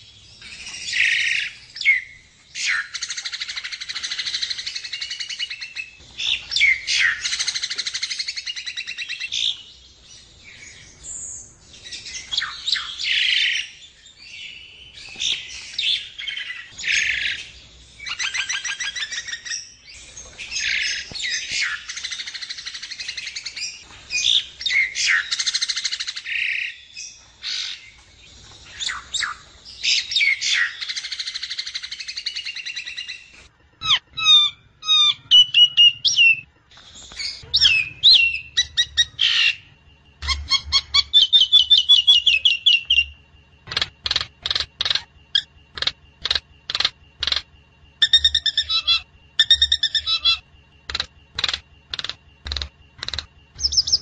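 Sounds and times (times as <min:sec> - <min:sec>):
myna chattering and whistling: 0:40.2 - 0:54.0.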